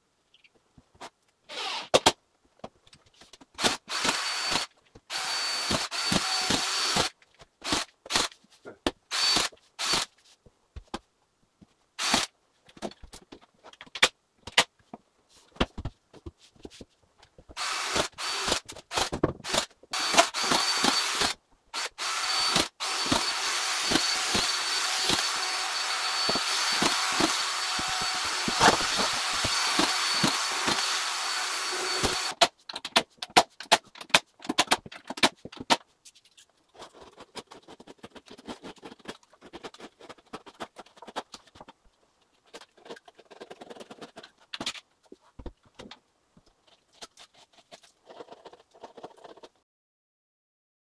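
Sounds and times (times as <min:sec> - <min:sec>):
power screwdriver whining: 0:03.6 - 0:07.1, 0:09.1 - 0:10.1, 0:17.6 - 0:32.4.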